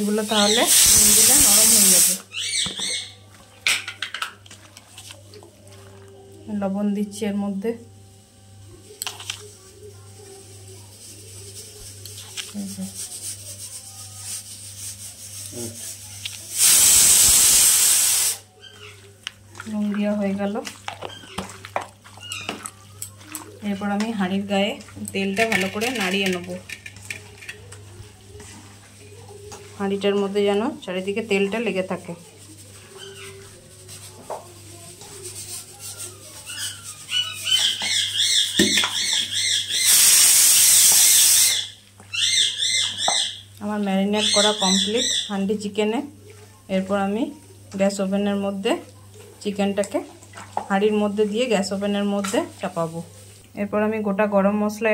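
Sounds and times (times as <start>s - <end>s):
hand rubbing salt into chicken: 0.0s - 2.2s, 9.1s - 19.2s, 32.1s - 41.6s
loud steady hiss: 0.0s - 2.2s, 16.6s - 18.4s, 39.8s - 41.7s.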